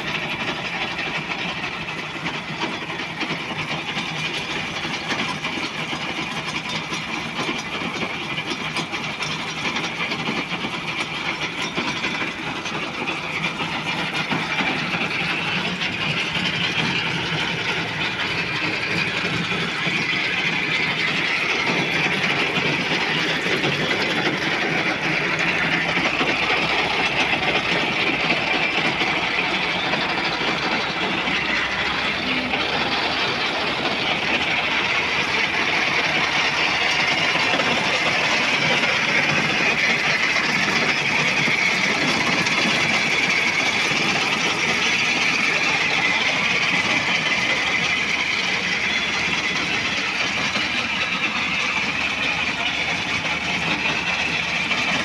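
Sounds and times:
corn harvester processing stalks: 0:00.0 - 0:55.0
tractor engine running under load: 0:00.0 - 0:55.0.

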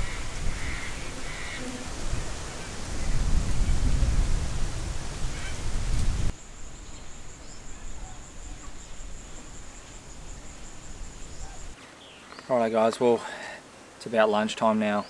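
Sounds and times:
insect trilling: 0:06.3 - 0:11.8.

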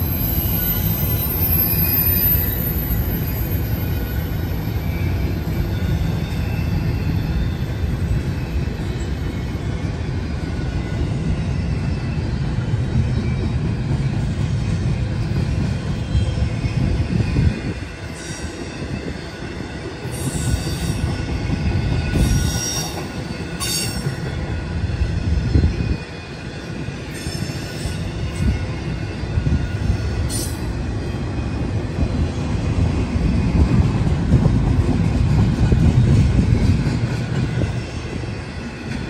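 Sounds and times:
metallic wheel squeals: 0:00.0 - 0:14.2, 0:15.4 - 0:31.5
freight train wheels rumbling: 0:00.0 - 0:39.0.

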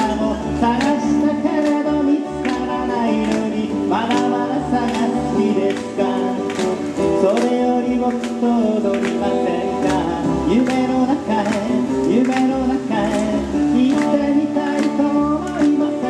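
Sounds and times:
acoustic guitar strumming: 0:00.0 - 0:16.0
upright bass: 0:00.0 - 0:16.0.

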